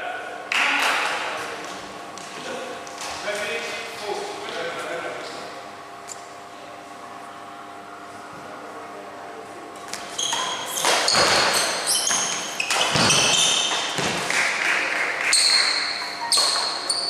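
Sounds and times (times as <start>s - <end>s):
sports shoes squeaking on court: 9.9s - 14.3s, 15.3s - 17.0s.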